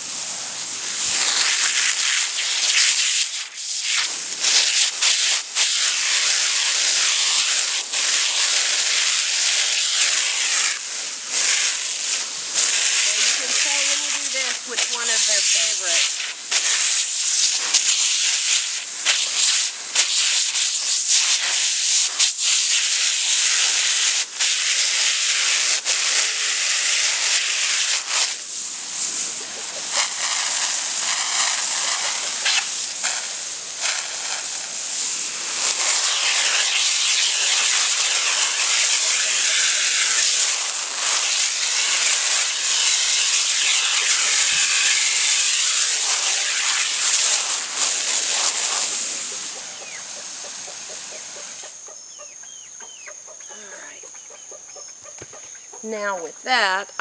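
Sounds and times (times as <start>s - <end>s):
water jet spraying on wood: 0.0s - 51.9s.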